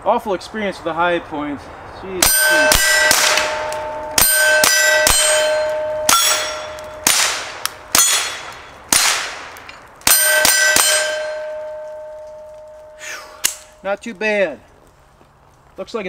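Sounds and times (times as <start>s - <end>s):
pistol shots: 2.2s - 11.8s
bullets ringing steel plates: 2.2s - 13.7s.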